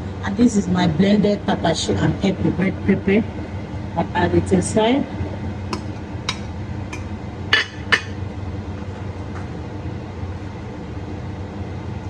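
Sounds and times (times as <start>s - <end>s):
steady low hum: 0.0s - 12.0s
spoon clinking on steel pot: 7.6s - 8.2s.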